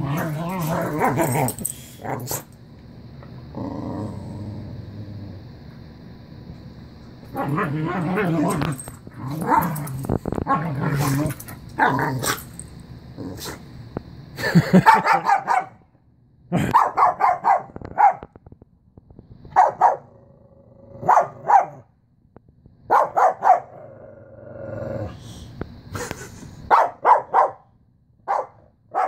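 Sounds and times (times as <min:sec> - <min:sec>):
dog growling: 0:00.0 - 0:02.5, 0:03.5 - 0:05.6, 0:07.3 - 0:12.5, 0:13.2 - 0:13.6, 0:19.9 - 0:21.5, 0:23.6 - 0:25.2
dog barking: 0:14.8 - 0:15.8, 0:16.7 - 0:18.2, 0:19.5 - 0:20.1, 0:21.0 - 0:21.8, 0:22.9 - 0:23.7, 0:26.7 - 0:27.6, 0:28.3 - 0:29.0.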